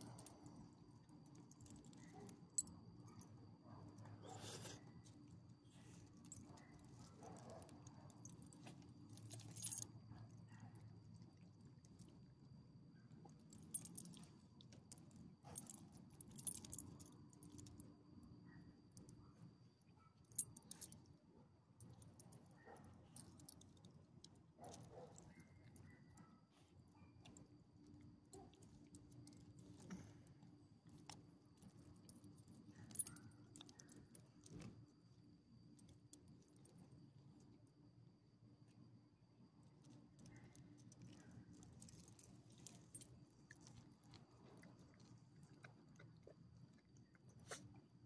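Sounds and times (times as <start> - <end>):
dog collar tags jingling: 9.3 - 9.8, 15.5 - 17.1.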